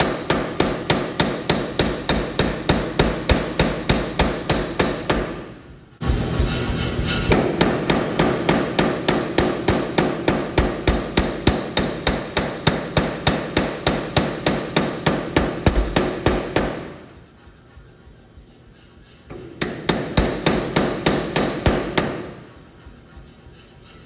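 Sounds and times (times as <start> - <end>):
power hammer striking steel: 0.0 - 5.6, 7.1 - 17.0, 19.3 - 22.5.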